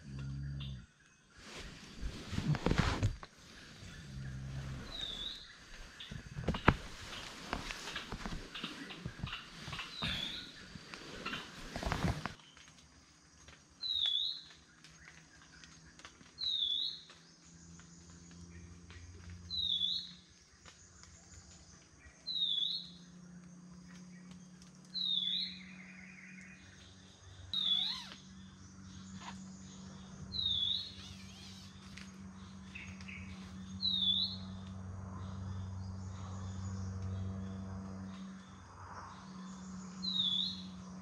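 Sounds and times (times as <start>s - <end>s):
low steady hum: 0.0s - 13.4s.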